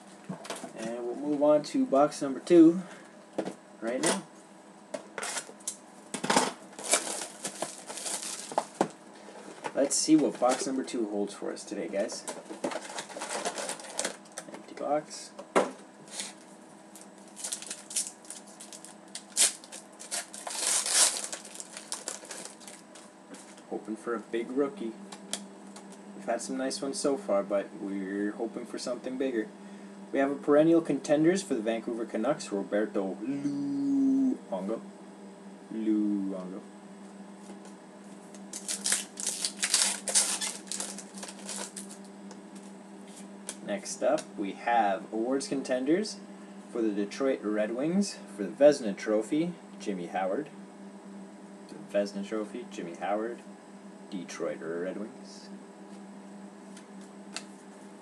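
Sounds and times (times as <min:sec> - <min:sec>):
steady low hum: 0:00.0 - 0:58.0
foil packs crinkling: 0:06.7 - 0:08.9, 0:12.5 - 0:14.4, 0:16.9 - 0:23.6, 0:38.4 - 0:42.1.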